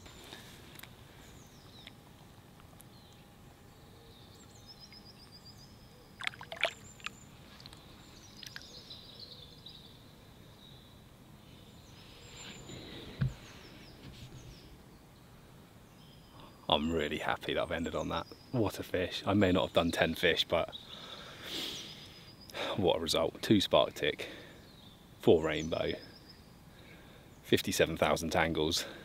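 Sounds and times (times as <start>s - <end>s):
birds calling: 0.0s - 29.0s
water splashing: 6.2s - 7.1s
low thump: 13.1s - 14.2s.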